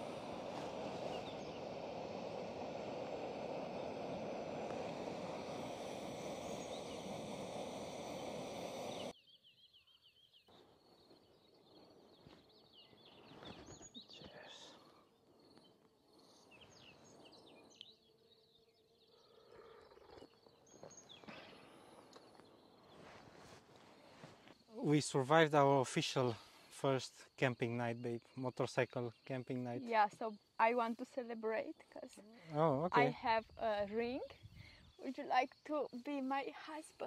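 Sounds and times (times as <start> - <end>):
loud rush of noise: 0.0 - 9.1
small birds chirping: 0.0 - 37.0.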